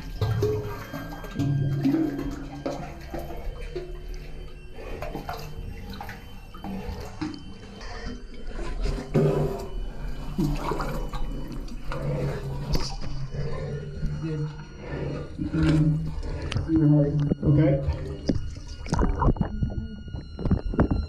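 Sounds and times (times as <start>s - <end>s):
water sloshing and splashing: 0.0s - 21.0s.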